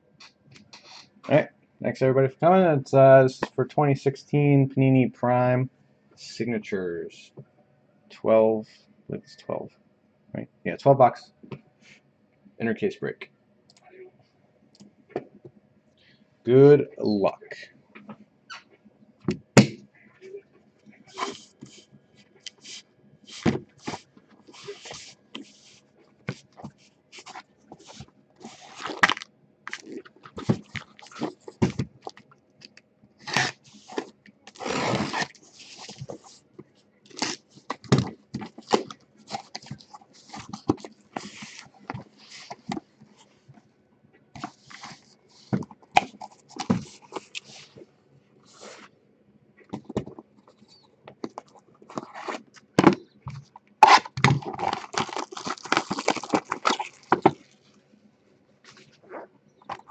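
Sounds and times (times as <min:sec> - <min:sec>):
cardboard flaps rustling: 0:29.8 - 0:32.2, 0:44.4 - 0:47.8
blade scraping packing tape: 0:33.2 - 0:35.9.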